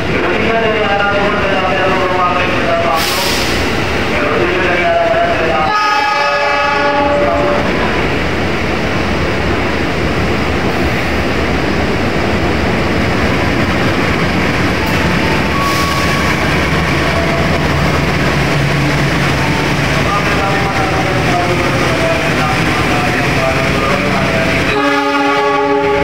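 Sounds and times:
train wheels rumbling on rail: 0.0 - 26.0
train horn: 5.6 - 7.8, 24.6 - 26.0.

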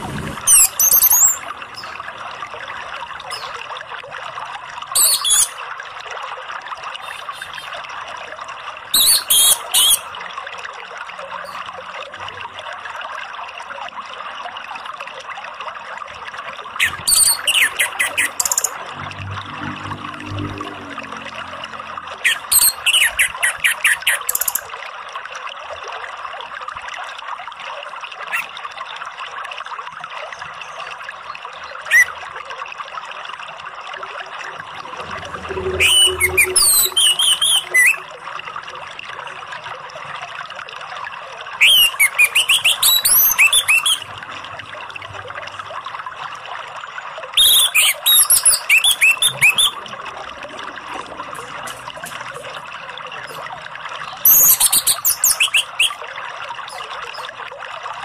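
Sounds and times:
thrush singing: 34.6 - 38.1.

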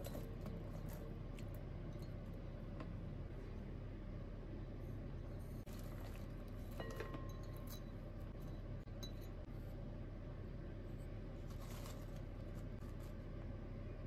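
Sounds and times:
steady low hum: 0.0 - 14.0
ceramic bowls clinking: 5.7 - 9.4
leaves rustling into bowl: 11.4 - 13.3.

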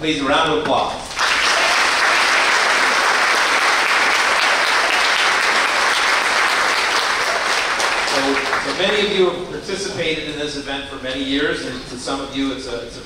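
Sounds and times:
audience applauding: 1.1 - 9.2.

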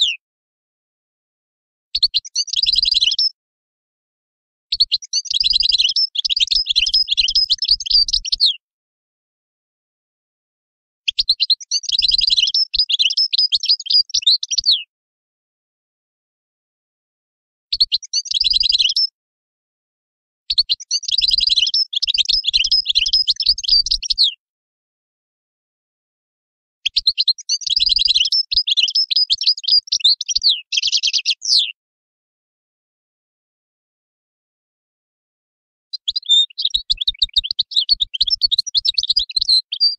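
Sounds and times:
bird singing high twittering notes: 2.0 - 3.4, 4.7 - 8.6, 11.1 - 14.8, 17.8 - 19.1, 20.6 - 24.3, 26.9 - 31.8, 36.0 - 39.9.

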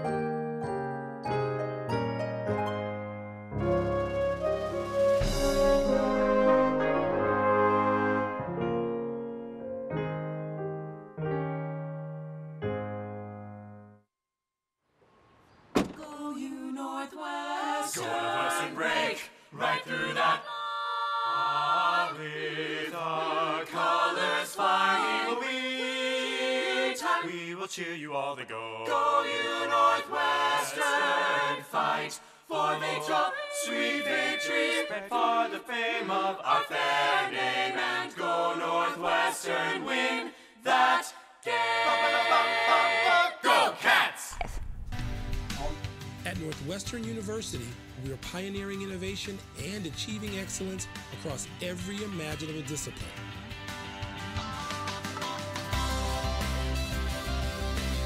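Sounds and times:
choir singing: 4.4 - 8.5, 16.2 - 44.5.

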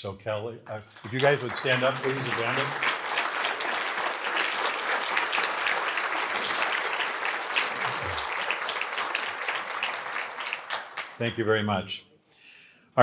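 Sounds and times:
audience applauding: 0.7 - 11.6.

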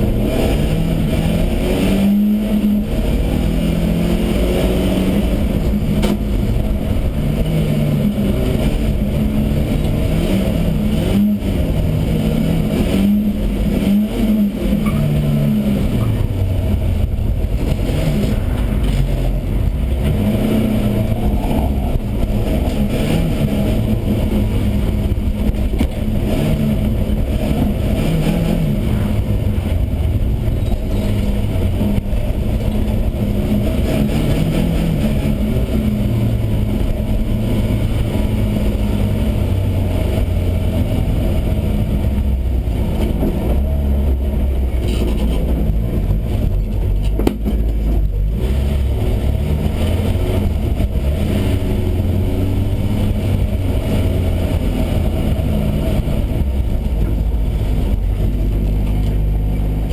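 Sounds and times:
race car engine revving: 0.0 - 59.9
tyre and road noise: 0.0 - 59.9.

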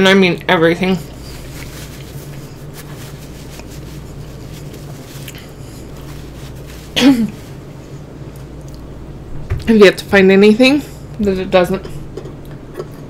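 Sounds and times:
low hum: 0.0 - 13.0
paper towel rustling: 0.8 - 8.1.

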